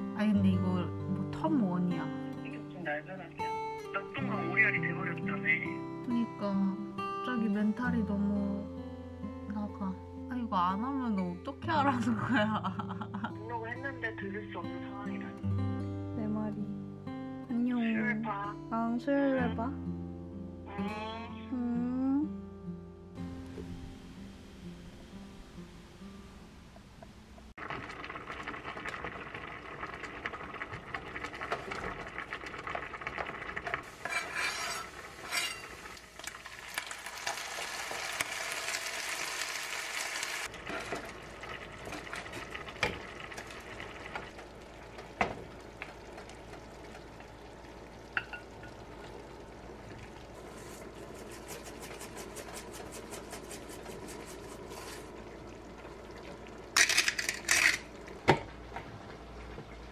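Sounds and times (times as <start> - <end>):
sauce sizzling in frying pan: 27.6 - 59.9
chopsticks scraping pan: 33.9 - 35.9, 50.5 - 55.1, 56.8 - 57.8
sugar rattling in glass jar: 56.8 - 57.8.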